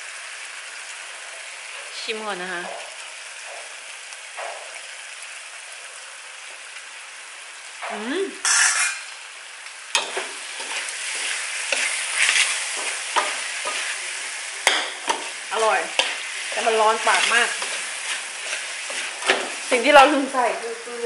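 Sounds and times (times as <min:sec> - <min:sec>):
pork sizzling in a wok: 0:00.0 - 0:21.0
metal ladle scraping a wok: 0:08.4 - 0:09.2, 0:10.0 - 0:19.7.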